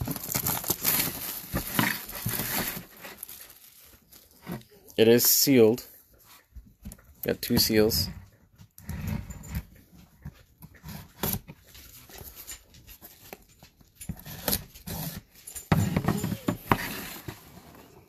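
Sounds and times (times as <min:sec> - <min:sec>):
scraping and crinkling of wrap: 0:00.0 - 0:05.0
knife slitting cardboard box: 0:14.1 - 0:17.8.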